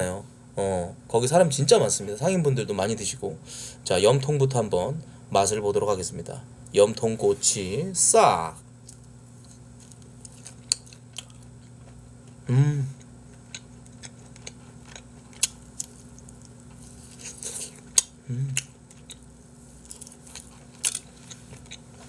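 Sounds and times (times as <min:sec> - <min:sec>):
low electrical hum: 0:00.0 - 0:22.0
person murmuring: 0:12.5 - 0:13.0, 0:18.2 - 0:18.6.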